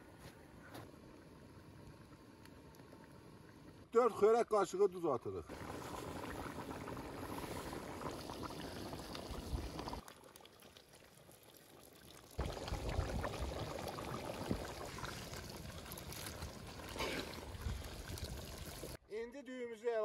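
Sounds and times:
broth boiling hard: 0.0 - 4.2, 5.4 - 19.0
ladle stirring and sloshing liquid: 5.5 - 19.0.

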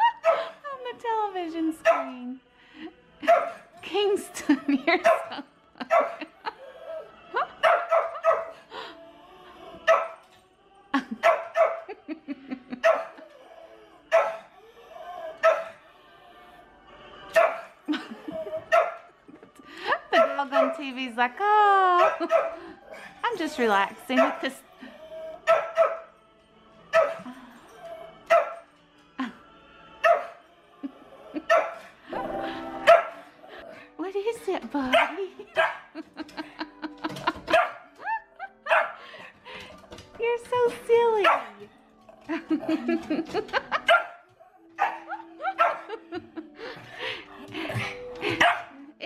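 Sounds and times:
christmas music from television: 0.0 - 49.0
dog barking: 3.2 - 3.6, 5.0 - 6.2, 7.6 - 8.6, 9.9 - 10.2, 11.2 - 11.9, 12.8 - 13.2, 14.1 - 14.5, 15.4 - 15.8, 17.3 - 17.7, 18.7 - 19.1, 20.2 - 20.8, 22.0 - 22.6, 24.2 - 24.5, 25.4 - 26.1, 26.9 - 27.2, 28.3 - 28.6, 30.0 - 30.4, 31.5 - 31.8, 32.9 - 33.2, 34.9 - 36.0, 37.5 - 37.9, 38.7 - 39.0, 41.2 - 41.6, 43.9 - 46.0, 48.4 - 48.8.

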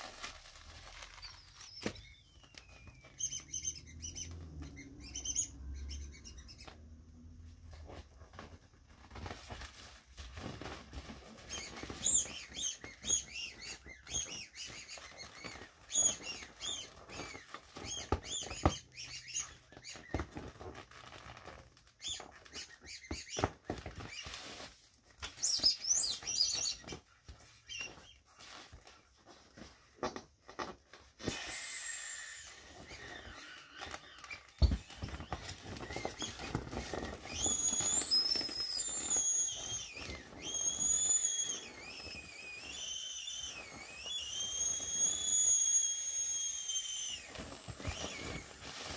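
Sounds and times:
vinyl toys squeaking: 1.2 - 6.8, 11.4 - 24.3, 31.3 - 48.9.

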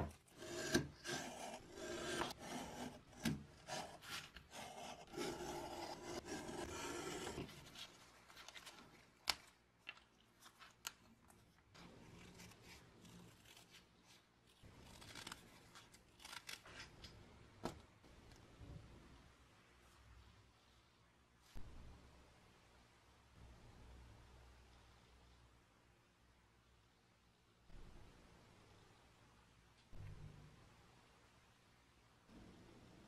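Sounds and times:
utility knife scraping paper: 0.3 - 8.8
paper rustling: 5.9 - 17.1.

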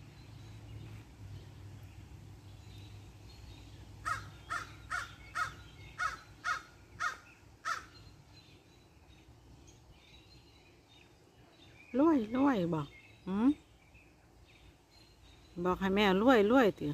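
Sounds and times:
crows cawing: 4.0 - 8.0.

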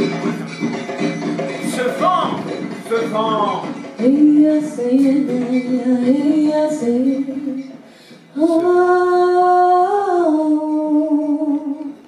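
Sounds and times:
woman singing without words: 4.0 - 12.0.

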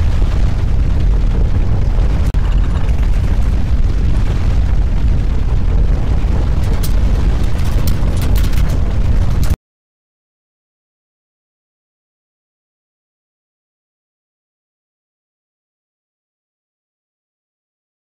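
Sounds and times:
loud low rumble: 0.0 - 9.6
sharp crackles and rattles: 0.0 - 9.6.

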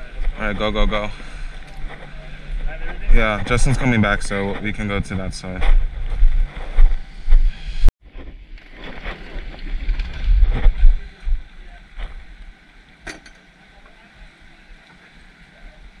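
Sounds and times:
wind buffeting microphone: 0.0 - 12.6.

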